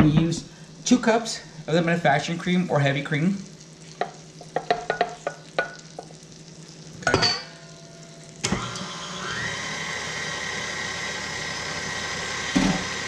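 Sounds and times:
stand mixer motor whining: 8.4 - 13.0.

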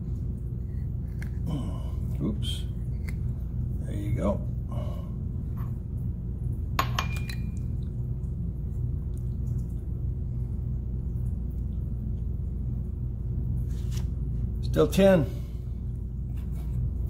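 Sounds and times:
low room noise hum: 0.0 - 17.0
light ringing clink: 6.8 - 7.6.

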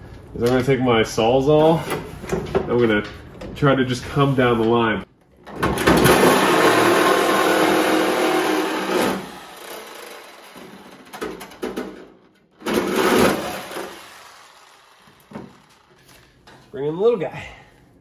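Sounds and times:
reciprocating saw cutting sheet steel: 6.1 - 11.0, 12.7 - 16.0.

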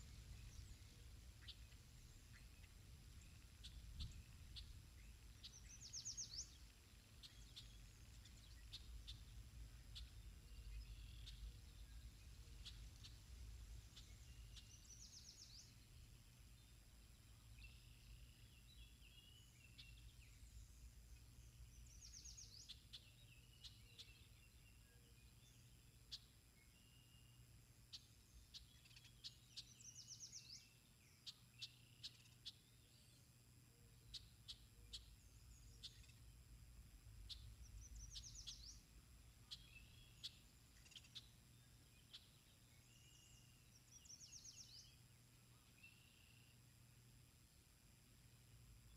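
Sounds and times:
songbird trilling: 1.4 - 11.6, 37.3 - 38.8.

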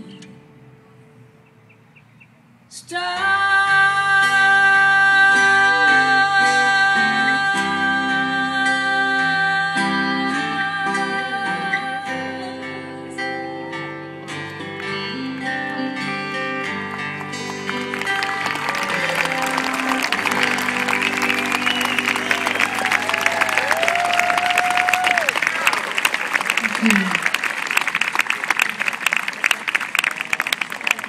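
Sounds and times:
live guitar-led music: 0.0 - 1.4, 3.2 - 25.7.

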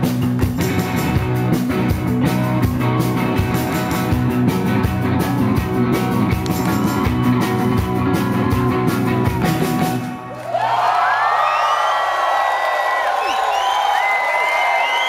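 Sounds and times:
live rock band playing: 0.0 - 10.3
crowd cheering and whooping: 6.5 - 15.0.

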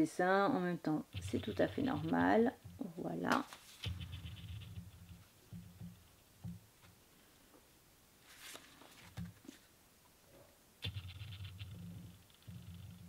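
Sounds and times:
paper pages rustling: 3.3 - 5.6, 8.2 - 9.7.

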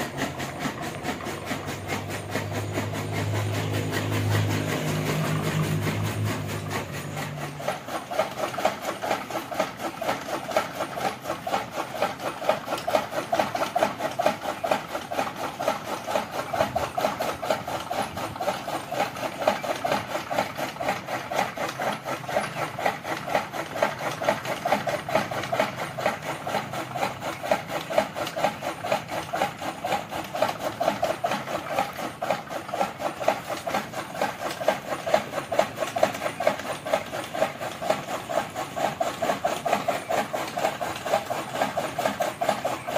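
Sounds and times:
fodder cutter chopping: 0.0 - 42.9.

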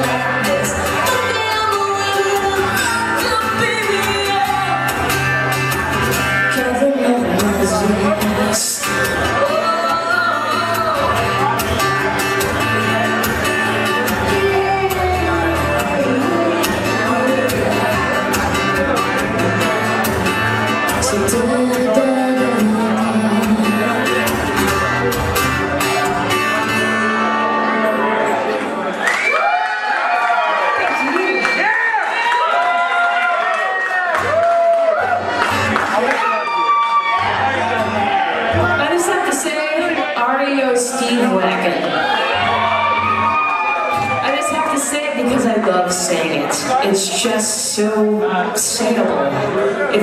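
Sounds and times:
woman singing: 0.0 - 4.9, 6.5 - 11.4, 14.1 - 17.9, 21.0 - 24.4
acoustic guitar: 0.0 - 29.3, 34.1 - 50.0.

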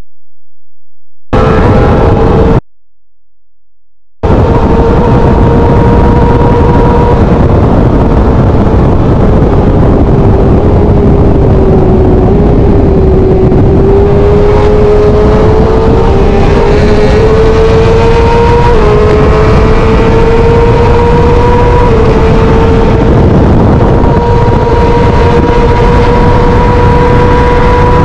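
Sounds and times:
sport bike engine at high revs: 1.4 - 2.6, 4.2 - 28.0
wind rushing over microphone: 1.4 - 2.6, 4.2 - 28.0.

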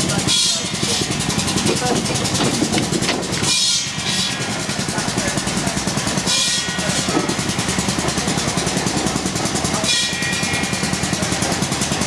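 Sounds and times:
steam engine mechanical beat: 0.0 - 12.0
steam hissing: 0.0 - 12.0.

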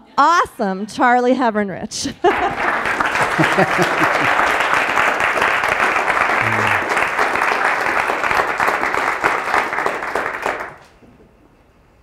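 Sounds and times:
audience applauding: 2.3 - 10.9.

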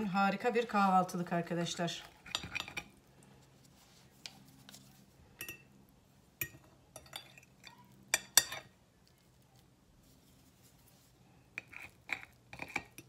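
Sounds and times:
cutlery clinking on a plate: 6.4 - 8.8.

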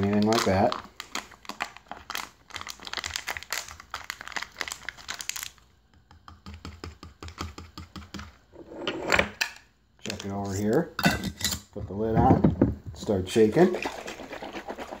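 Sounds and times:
plastic packaging crinkling: 0.0 - 5.6.

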